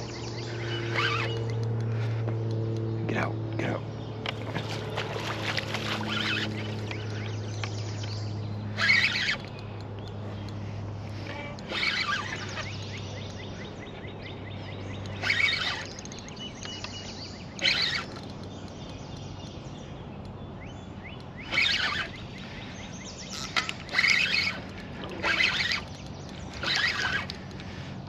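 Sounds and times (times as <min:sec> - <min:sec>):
fishing reel drag buzzing: 0:00.0 - 0:02.1, 0:04.3 - 0:07.7, 0:08.6 - 0:13.5, 0:14.9 - 0:16.6, 0:17.5 - 0:18.8, 0:21.3 - 0:28.0
low steady hum: 0:00.0 - 0:28.0.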